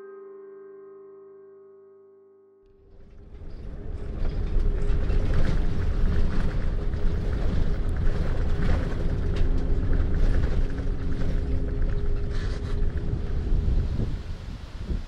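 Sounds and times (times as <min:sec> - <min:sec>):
rattles and creaks: 0:02.8 - 0:14.2
bus engine rumble: 0:02.8 - 0:15.0.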